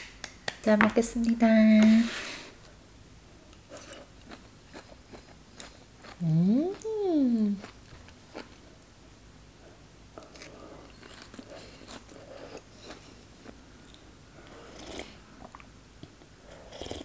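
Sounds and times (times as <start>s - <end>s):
person chewing: 3.5s - 8.9s, 10.1s - 17.0s.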